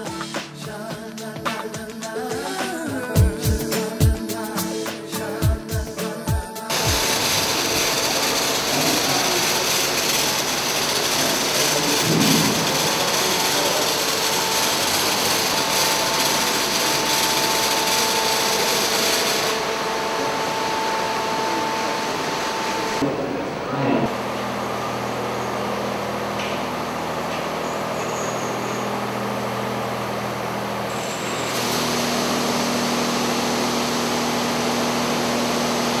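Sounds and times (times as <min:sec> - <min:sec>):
high motor whine: 0:02.5 - 0:36.0
car wash brush scrubbing: 0:06.7 - 0:19.8
water spraying: 0:06.7 - 0:23.0, 0:30.9 - 0:36.0.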